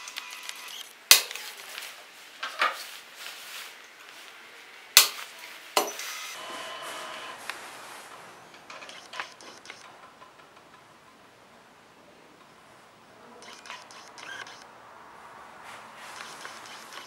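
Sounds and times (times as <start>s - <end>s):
sharp plastic clacks: 8.5s - 11.2s, 13.4s - 14.7s.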